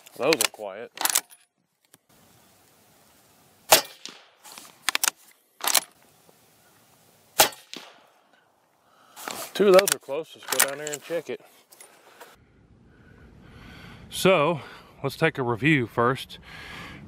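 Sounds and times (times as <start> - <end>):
suppressed rifle shots: 3.7 - 4.4, 7.4 - 8.2
rifle bolt clacks: 4.9 - 6.0.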